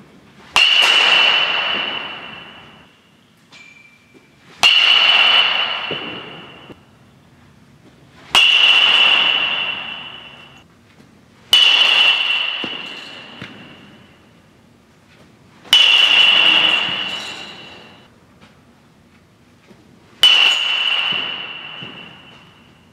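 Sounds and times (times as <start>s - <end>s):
metal bat hitting baseball: 0.5s - 3.0s, 3.6s - 6.8s, 8.2s - 10.6s, 11.5s - 14.3s, 15.6s - 18.1s, 20.2s - 22.9s.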